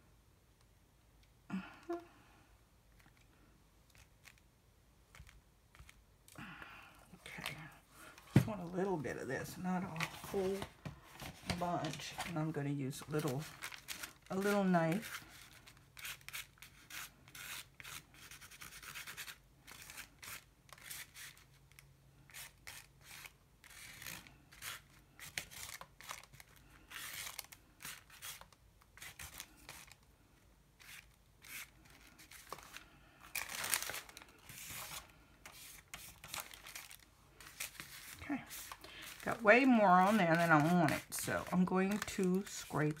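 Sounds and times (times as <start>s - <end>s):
plastic sheet crinkling: 9.4s - 16.9s, 22.6s - 30.1s, 30.8s - 43.0s
plastic knife spreading paint: 14.3s - 21.5s, 30.8s - 32.5s, 34.5s - 36.4s, 37.5s - 43.0s.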